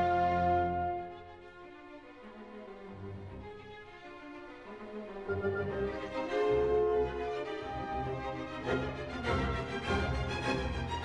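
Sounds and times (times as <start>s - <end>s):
music with held notes and beat: 5.3s - 10.6s.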